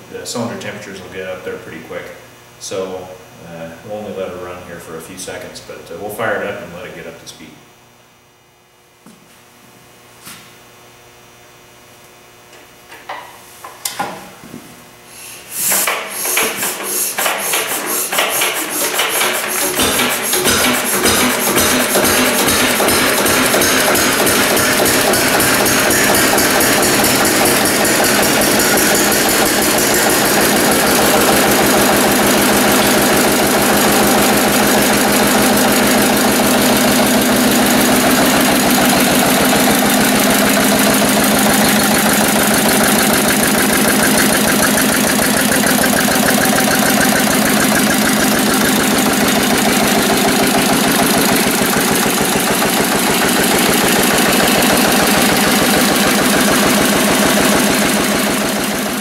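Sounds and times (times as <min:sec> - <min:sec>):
diesel engine running: 0:18.8 - 0:59.0.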